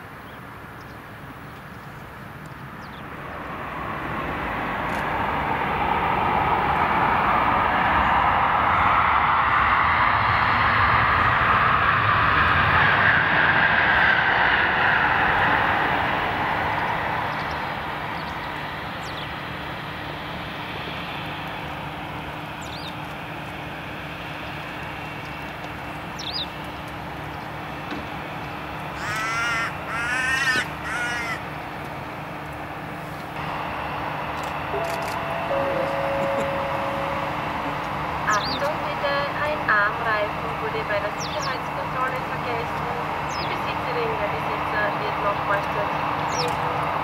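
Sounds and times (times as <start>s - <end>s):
jet engines rumbling: 0.0s - 47.0s
crow cawing: 29.0s - 31.5s.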